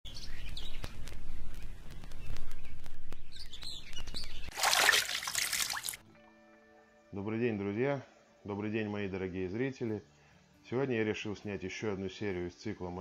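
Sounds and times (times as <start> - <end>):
birds chirping: 0.1 - 5.7.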